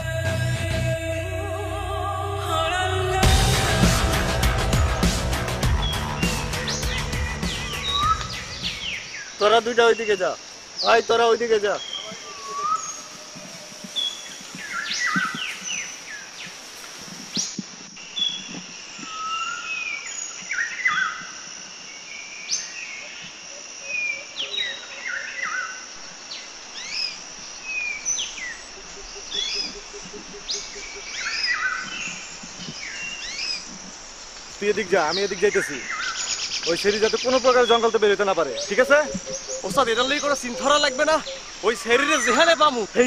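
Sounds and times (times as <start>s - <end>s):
high insect hum: 0.0s - 43.0s
birds chirping and whistling: 2.6s - 16.5s, 17.3s - 21.4s, 26.7s - 34.0s, 34.6s - 43.0s.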